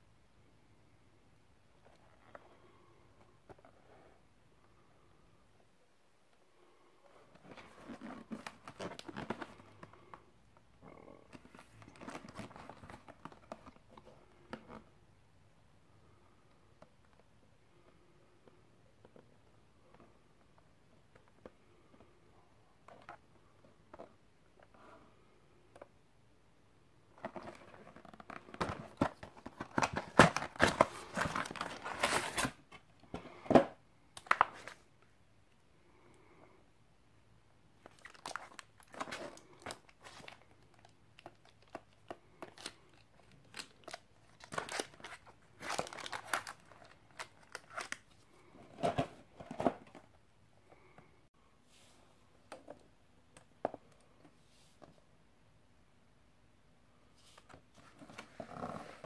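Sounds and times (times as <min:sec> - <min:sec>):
fingers rustling a cardboard box: 0:27.2 - 0:32.6.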